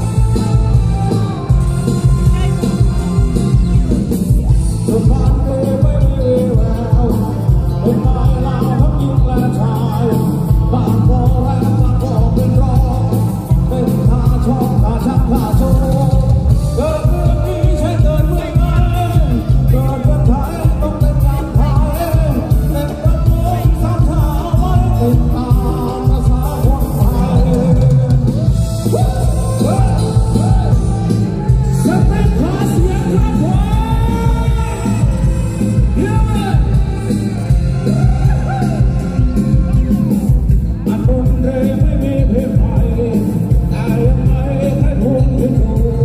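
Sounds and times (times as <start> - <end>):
live band playing: 0.0 - 46.0
man singing: 0.0 - 46.0.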